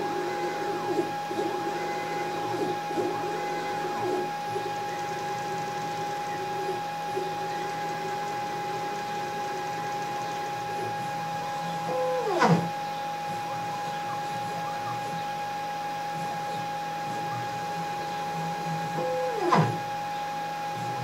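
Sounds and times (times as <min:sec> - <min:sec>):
stepper motors moving: 0:00.0 - 0:15.2
steady high-pitched whine: 0:00.0 - 0:21.0.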